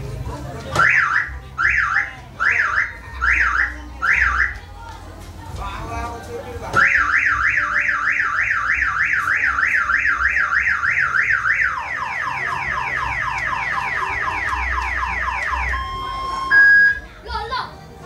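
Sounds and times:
car alarm siren: 0.8s - 4.6s, 6.8s - 17.0s.

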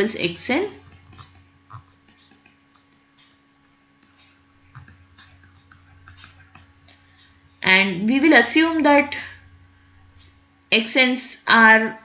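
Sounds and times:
faint electrical hum: 0.0s - 12.0s
stylus tapping and scratching: 0.7s - 7.7s.

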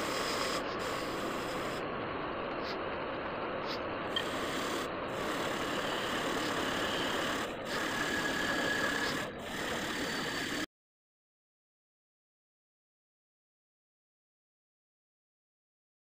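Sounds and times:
wire wheel brush scrubbing metal: 3.7s - 10.7s.

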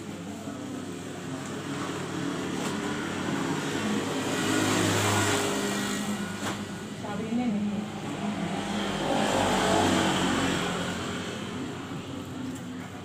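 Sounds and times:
vehicle engine passing: 1.8s - 6.7s, 7.5s - 12.0s.

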